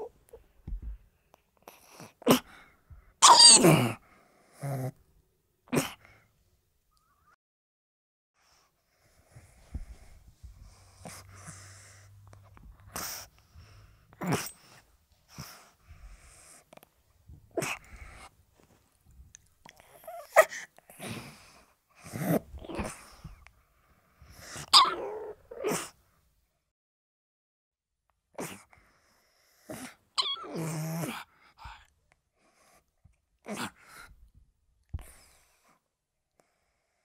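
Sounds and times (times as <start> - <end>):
dog sneezing and snorting: 3.2 - 4.0, 14.2 - 14.7.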